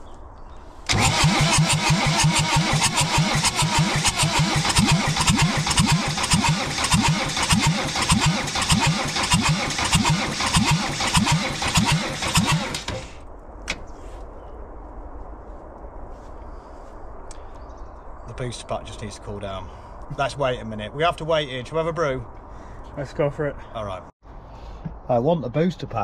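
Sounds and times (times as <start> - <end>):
diesel engine cranking: 0.8 - 13.2.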